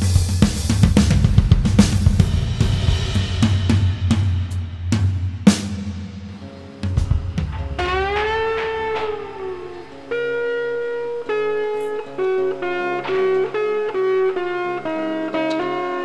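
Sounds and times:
guitar playing lead line: 6.3 - 16.0.

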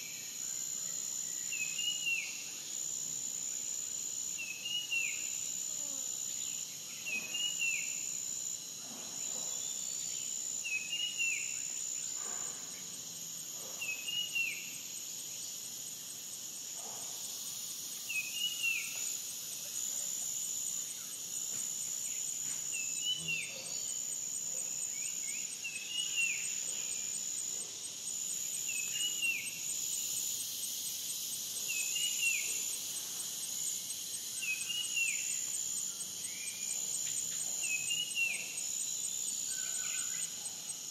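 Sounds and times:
insects trilling: 0.0 - 40.9.

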